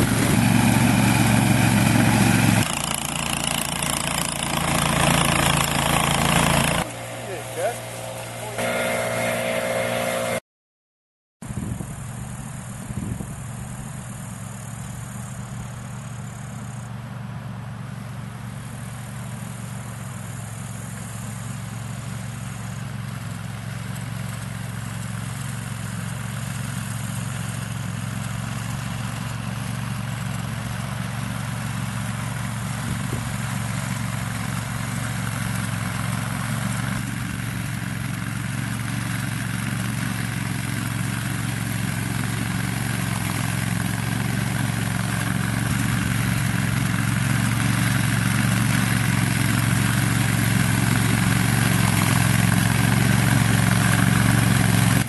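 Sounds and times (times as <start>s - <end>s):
mower engine running: 0.0s - 10.4s, 11.5s - 55.0s.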